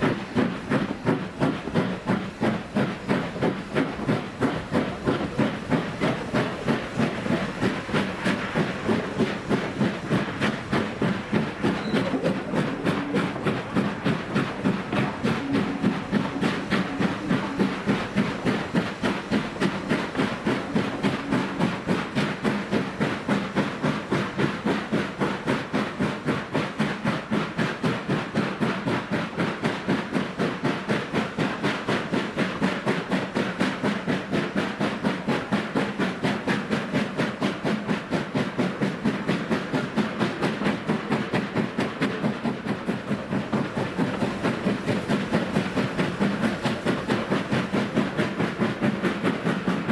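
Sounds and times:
steam locomotive chuffing: 0.0 - 49.9.

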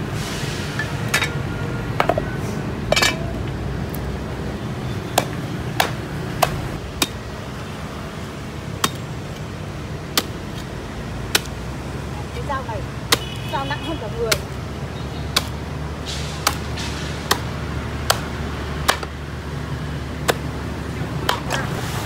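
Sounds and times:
cleaver chopping on wooden block: 5.2 - 7.2, 11.3 - 11.6, 15.3 - 15.6, 16.4 - 16.7, 17.3 - 19.2.

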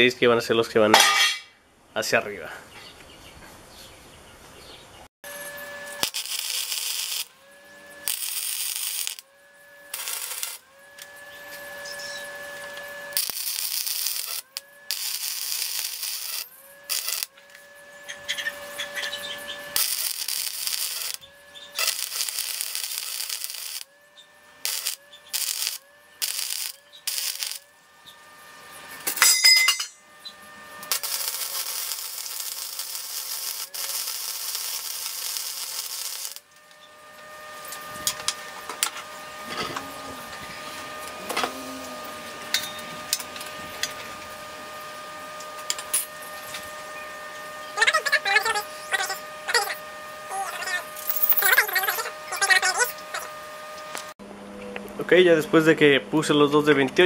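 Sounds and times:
sharp metal clank: 0.9 - 1.5, 29.1 - 30.0
steady welder whine: 5.2 - 57.0
welding arc crackling: 5.3 - 29.3, 30.2 - 54.2.

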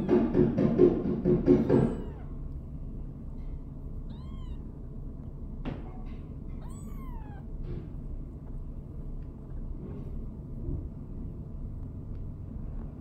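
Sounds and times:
kitten mewing: 1.6 - 2.4, 4.1 - 4.8, 6.5 - 7.6.

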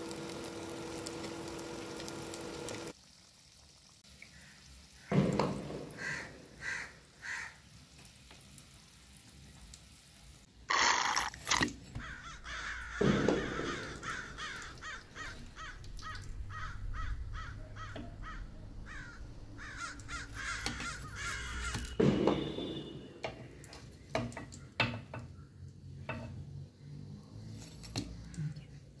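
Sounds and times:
crows cawing: 5.9 - 7.6, 11.9 - 22.8.

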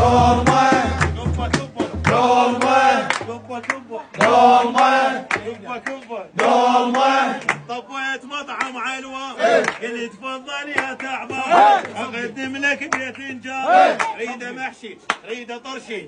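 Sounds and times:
sharp percussive hits: 0.0 - 3.4
men chanting a folk song: 0.0 - 16.0.

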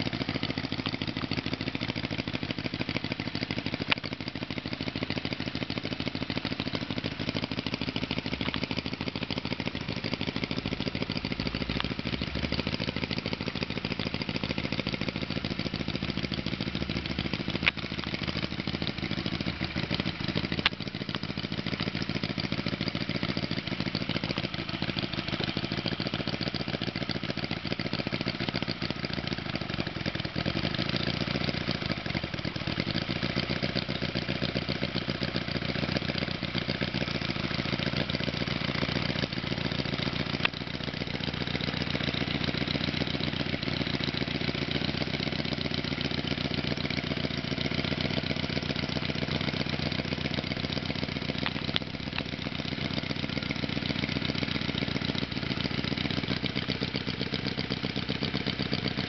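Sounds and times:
model engine running: 0.0 - 59.0.

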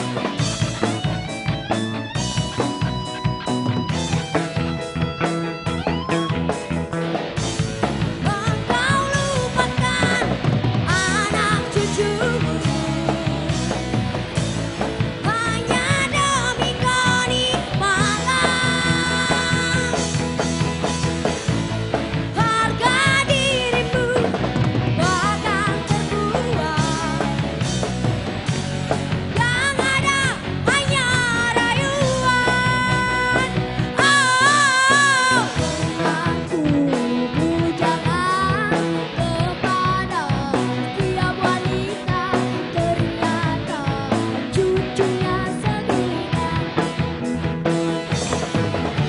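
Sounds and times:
drums: 0.0 - 49.0
electric guitars: 0.0 - 49.0
woman singing into a microphone: 8.2 - 14.0, 15.2 - 20.3, 22.3 - 27.7, 29.4 - 47.2.

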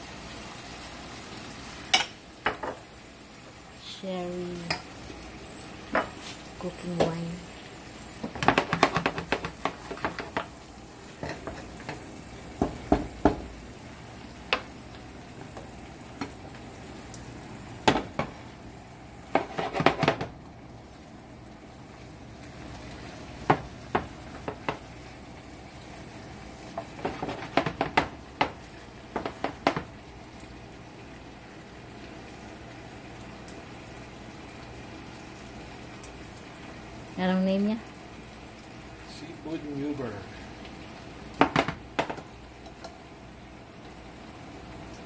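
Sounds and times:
seafood sizzling in a skillet: 0.0 - 45.0
spoon knocking and scraping pan: 2.0 - 2.8, 5.9 - 6.4, 8.2 - 13.5, 14.4 - 14.8, 17.8 - 18.4, 19.3 - 20.3, 23.4 - 24.9, 26.7 - 30.0, 41.4 - 43.0.

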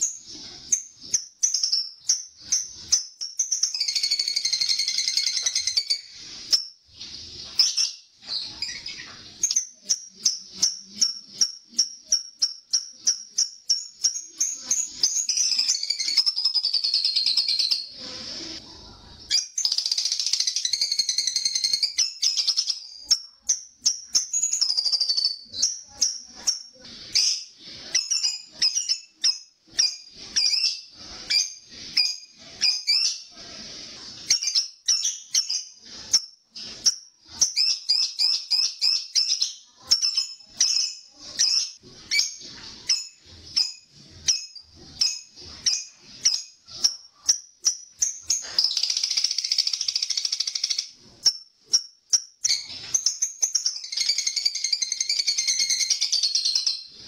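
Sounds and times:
sharp bird chirps: 0.0 - 18.4, 34.2 - 57.0.

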